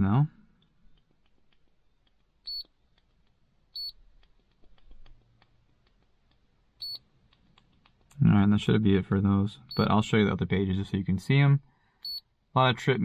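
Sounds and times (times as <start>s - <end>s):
high-pitched electronic beeps: 2.5s - 2.7s, 3.8s - 4.0s, 6.8s - 7.0s, 9.7s - 9.9s, 12.0s - 12.3s.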